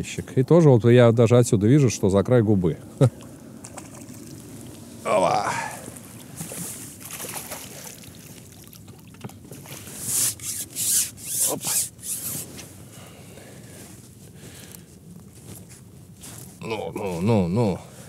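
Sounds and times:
fish splashing: 3.6s - 5.0s, 5.6s - 10.8s.

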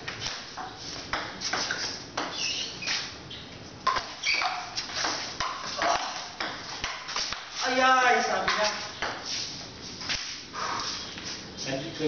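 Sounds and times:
ball bouncing on table: 1.1s - 2.4s.

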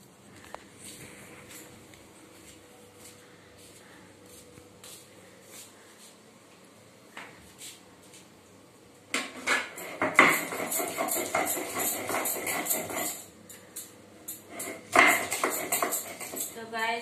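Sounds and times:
knife chopping on wooden board: 9.9s - 13.2s, 14.6s - 16.5s.

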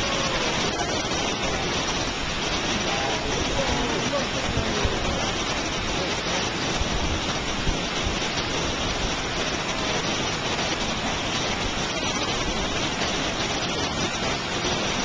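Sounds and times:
waterfall roaring: 0.0s - 15.0s.

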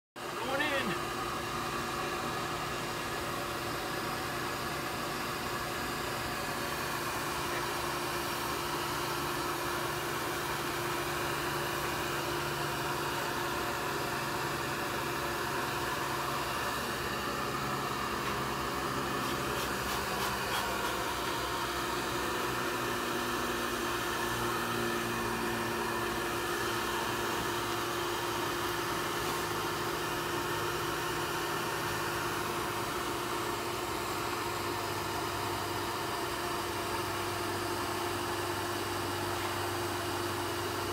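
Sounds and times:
vacuum motor humming: 0.2s - 40.9s.

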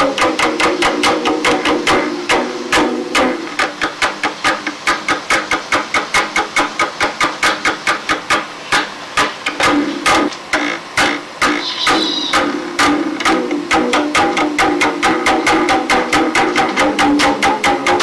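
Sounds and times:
fast percussion beat: 0.0s - 10.4s, 11.0s - 18.0s.

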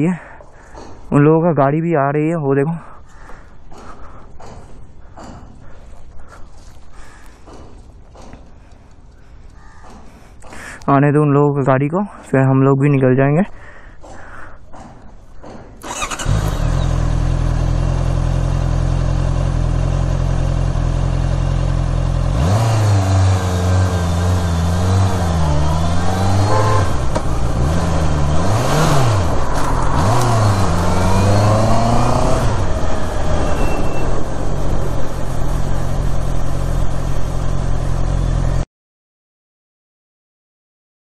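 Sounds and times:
motorcycle engine revving: 15.8s - 38.6s.

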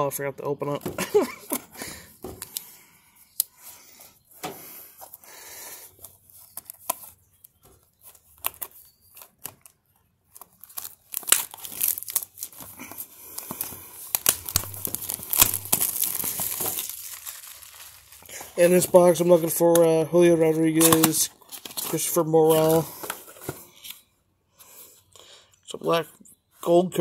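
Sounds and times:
plastic shrink-wrap crinkling: 6.3s - 19.9s.

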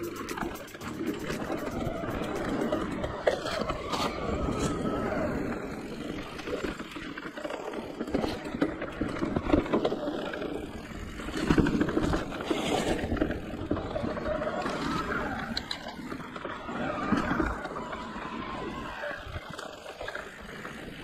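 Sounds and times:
bike rattling clicks: 0.0s - 4.9s
bike tyre rumble on dirt: 1.8s - 21.0s.

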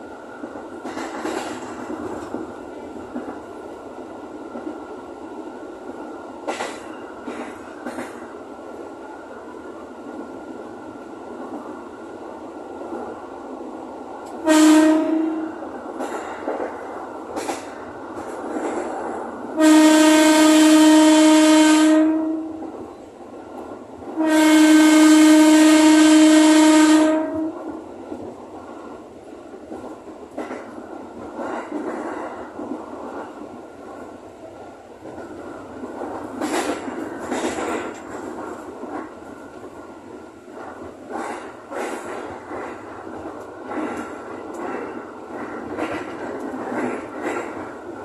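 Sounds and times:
train rumbling: 0.0s - 48.0s
train horn blasts: 14.4s - 15.6s, 19.6s - 22.7s, 24.2s - 27.8s.

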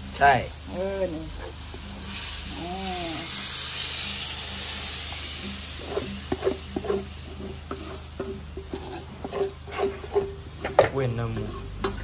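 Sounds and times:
food sizzling in a pan: 0.0s - 12.0s
utensil scraping a pan: 1.2s - 2.5s, 3.2s - 12.0s.

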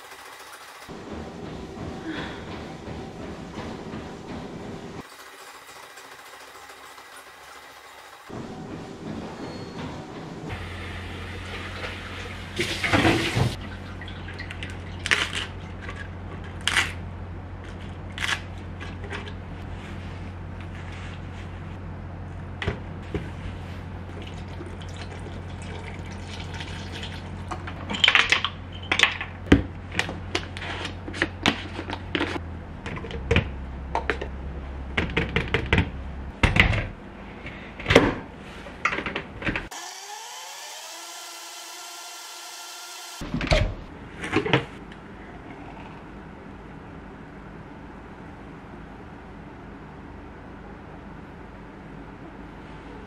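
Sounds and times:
steady low hum: 0.9s - 5.0s, 8.3s - 27.9s.

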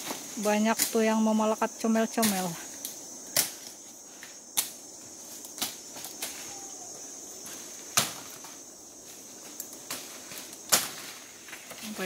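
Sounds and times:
high insect drone: 0.0s - 12.0s
sharp cracks: 2.2s - 3.8s, 7.9s - 8.4s, 9.6s - 11.6s.

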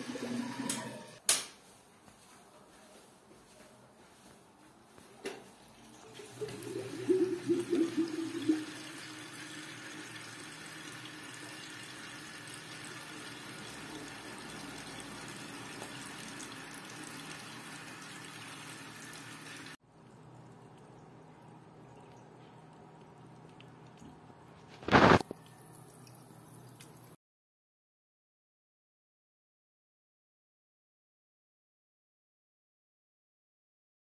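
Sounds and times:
circulating water rushing: 5.9s - 19.8s
water gurgling in pump loop: 5.9s - 27.1s.

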